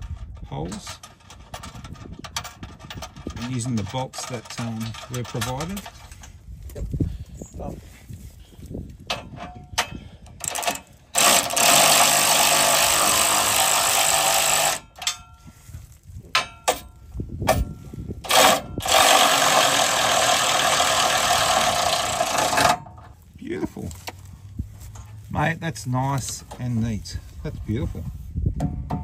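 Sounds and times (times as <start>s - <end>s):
cordless ratchet running: 10.4s - 15.0s, 18.3s - 22.8s.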